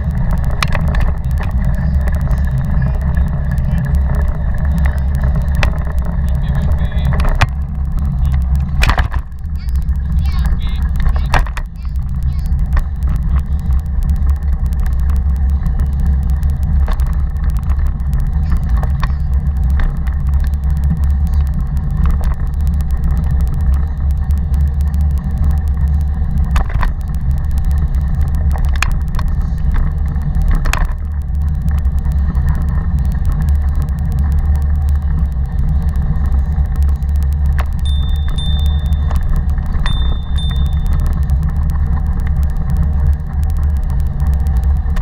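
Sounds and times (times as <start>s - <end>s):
bike ride rumble and wind: 0.0s - 45.0s
bike frame knocks and rattles: 7.1s - 9.4s.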